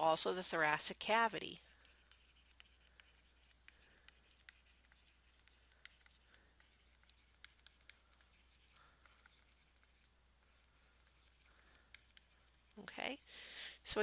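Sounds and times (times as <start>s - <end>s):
stylus tapping on tablet: 1.9s - 10.1s.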